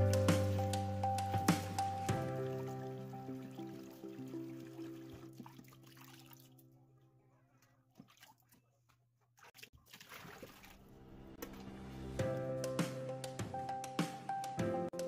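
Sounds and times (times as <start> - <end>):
background music with held notes: 0.0 - 5.8, 11.0 - 15.0
water splashing into sink: 2.2 - 6.6, 9.4 - 11.6.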